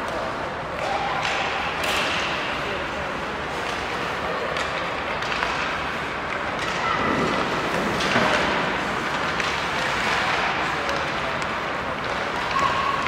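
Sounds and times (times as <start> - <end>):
hockey sticks and pucks knocking: 0.0 - 2.6, 3.5 - 13.0
skates scraping ice: 3.2 - 13.0.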